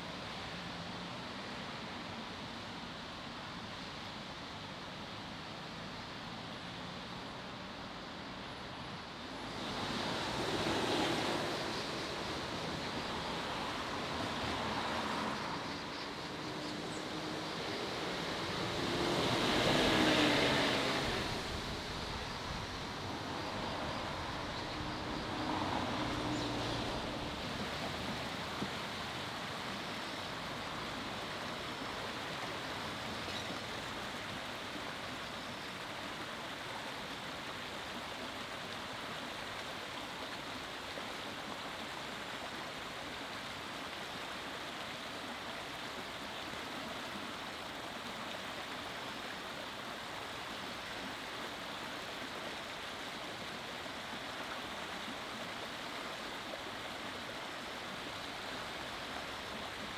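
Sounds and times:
running water: 0:09.2 - 0:59.9.

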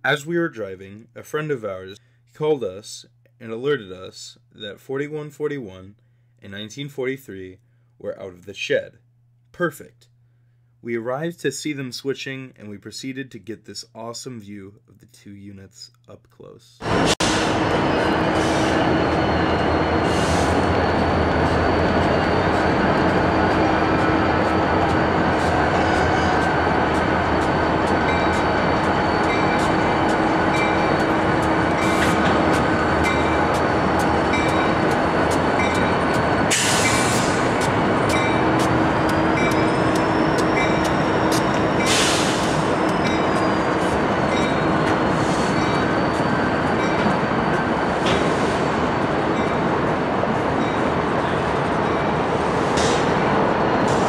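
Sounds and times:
high whine: 0:16.8 - 0:49.6
diesel locomotives running: 0:16.8 - 0:54.0
short hisses: 0:41.9 - 0:42.7.

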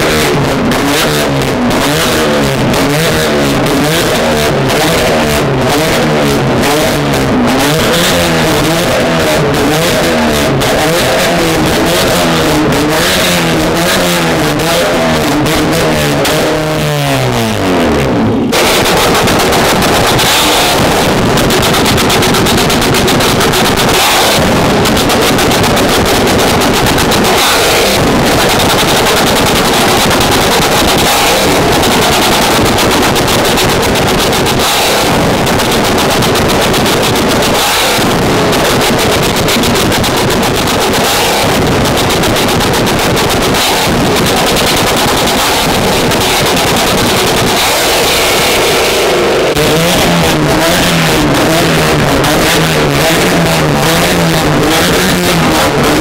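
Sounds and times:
engine revs falling: 0:00.0 - 0:56.0
exhaust cracks and bangs: 0:18.4 - 0:48.8.

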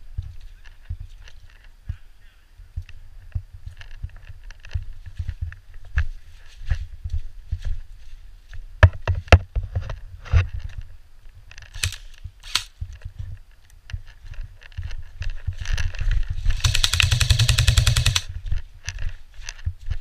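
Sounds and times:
footsteps on muddy path: 0:03.5 - 0:08.7
airsoft rifle full-auto burst: 0:11.8 - 0:12.7, 0:16.5 - 0:18.3.

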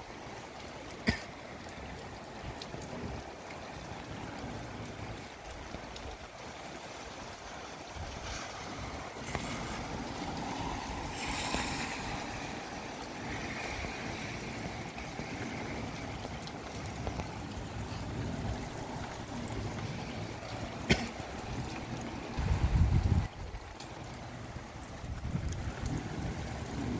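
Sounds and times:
rain: 0:00.0 - 0:26.9
gusty wind: 0:06.6 - 0:26.9.

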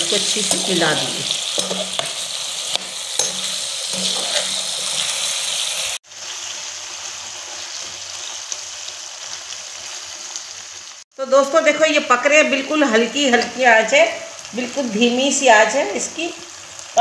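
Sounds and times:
potato slices sizzling in oil: 0:00.0 - 0:17.0
metal spoon clicking against pan: 0:01.6 - 0:04.1.

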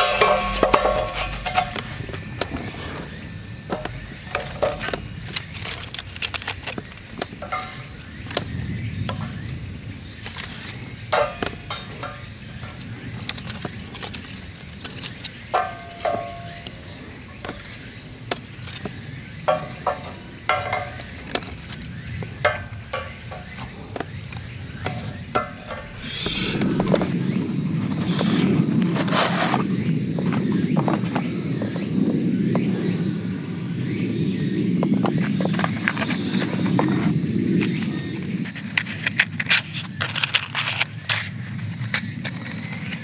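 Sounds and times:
steady high-pitched hiss: 0:00.0 - 0:43.0
wooden logs knocking and clattering: 0:03.6 - 0:09.4.

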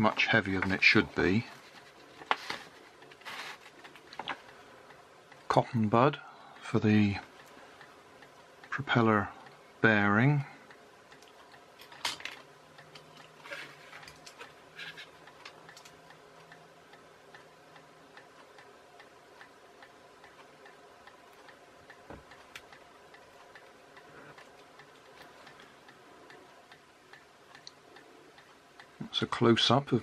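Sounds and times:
faint steady ticking: 0:00.0 - 0:30.0
light clicks and taps of small parts: 0:11.1 - 0:16.6.

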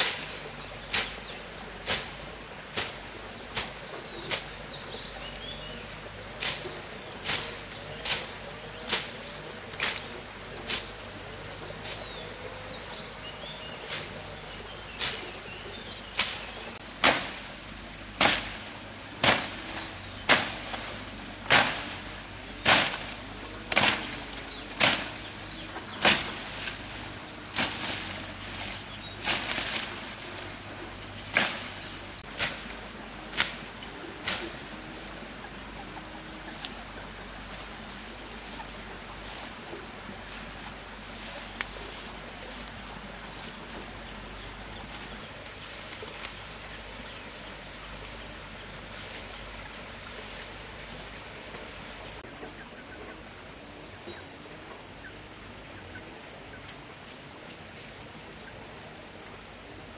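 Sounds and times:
insect chirring: 0:06.4 - 0:37.5.

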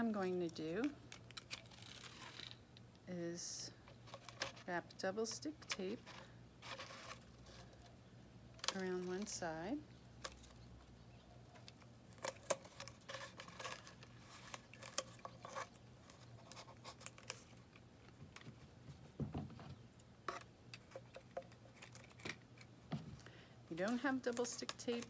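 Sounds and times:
tape and cardboard rustling: 0:00.0 - 0:02.6, 0:03.8 - 0:08.0, 0:08.6 - 0:25.0.

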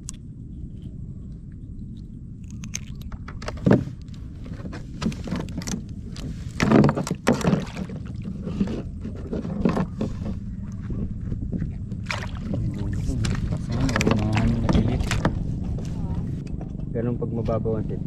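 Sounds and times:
low rumble: 0:00.0 - 0:18.0
handling knocks and rustles: 0:03.1 - 0:16.9.

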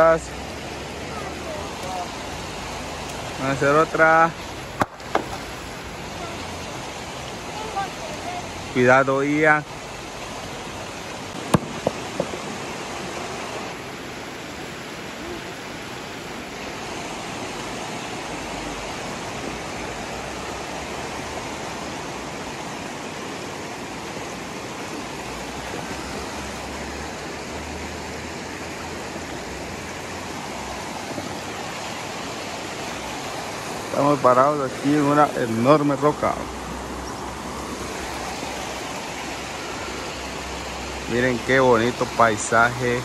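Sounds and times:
water rushing over rocks: 0:00.0 - 0:43.0
sharp knock: 0:11.5 - 0:12.4.

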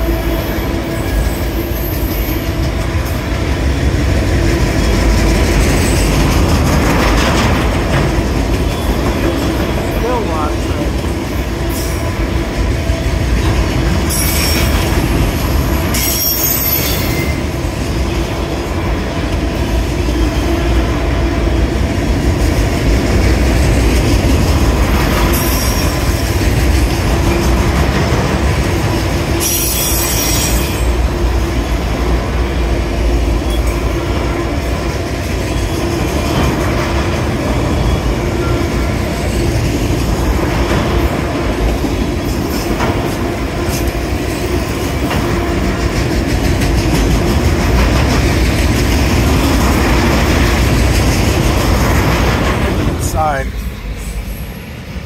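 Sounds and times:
freight train wheels rumbling: 0:00.0 - 0:55.0
high-pitched wheel squeals: 0:29.4 - 0:30.9.

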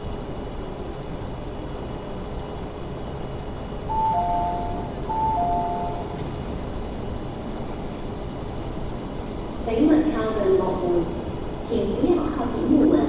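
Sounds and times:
train and station hum: 0:00.0 - 0:13.0
two-note door chime: 0:03.9 - 0:06.2.

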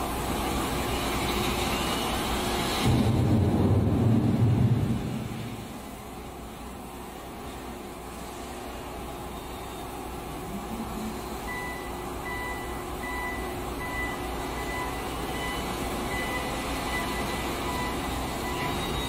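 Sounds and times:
machine hum: 0:00.0 - 0:19.0
reversing alarm beeping: 0:11.4 - 0:19.0.

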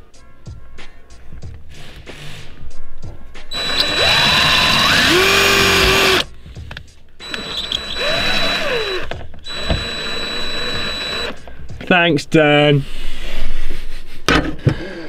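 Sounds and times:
electric drill driving screw: 0:03.5 - 0:06.3, 0:07.2 - 0:11.4.

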